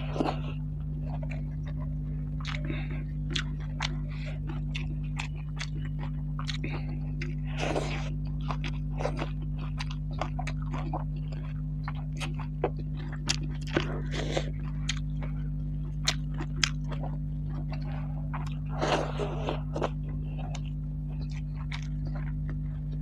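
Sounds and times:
chewing and mouth clicks: 0.0 - 23.0
low hum: 0.0 - 23.0.

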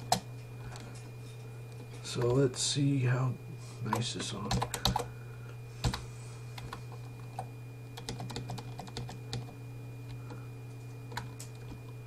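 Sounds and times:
keyboard keys clicking: 7.4 - 9.5.

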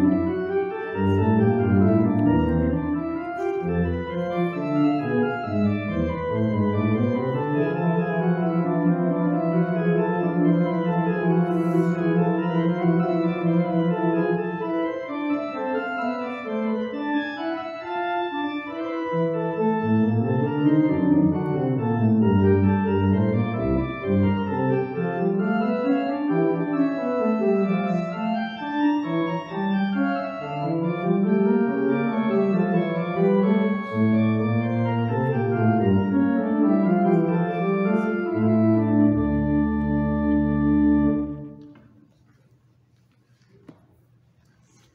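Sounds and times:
organ playing slow chords: 0.0 - 41.6.

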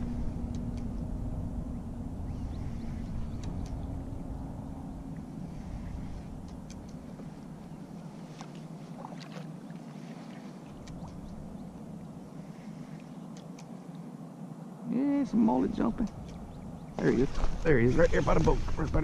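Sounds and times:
light clicks: 0.5 - 1.1, 3.3 - 3.9, 6.4 - 7.0, 10.7 - 11.4, 13.3 - 14.0, 16.0 - 16.4
waves lapping against kayak hull: 5.4 - 11.4, 17.0 - 18.9.

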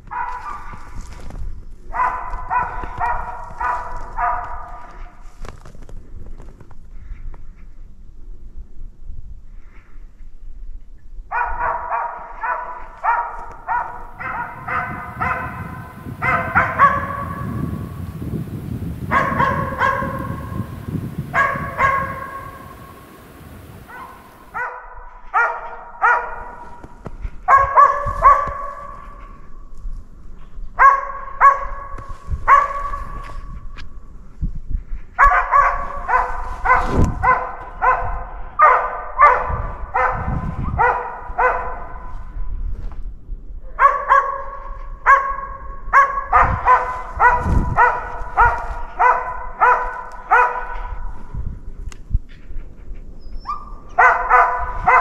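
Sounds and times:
dog barking rapidly: 0.1 - 0.8, 1.9 - 5.0, 11.3 - 17.8, 19.1 - 20.7, 21.3 - 22.8, 23.9 - 26.8, 27.5 - 29.0, 30.8 - 33.3, 35.2 - 42.1, 43.8 - 51.1, 53.5 - 55.0.

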